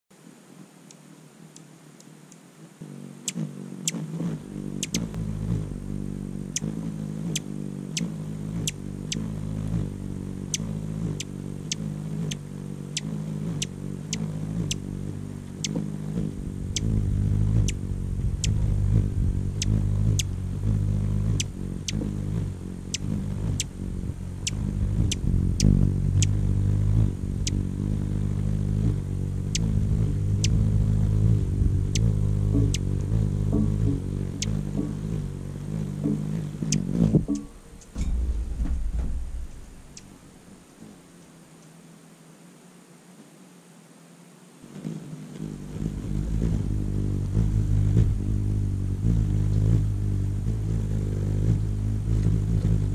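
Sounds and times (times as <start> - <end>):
hummingbird wings humming: 0.2 - 52.9
sharp bird chip notes: 4.8 - 5.1, 31.9 - 32.9.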